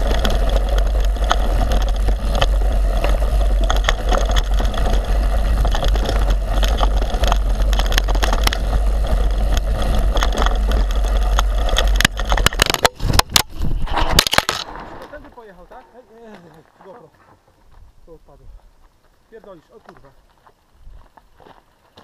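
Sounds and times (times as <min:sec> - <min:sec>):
bike rattling clicks: 0:00.0 - 0:15.2
tyres rolling over dirt: 0:00.0 - 0:22.0.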